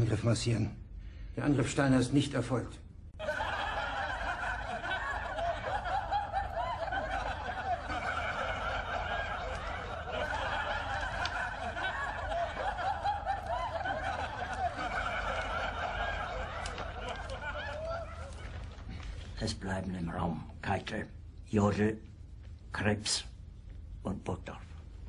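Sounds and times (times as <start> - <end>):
crowd laughing: 3.2 - 19.4.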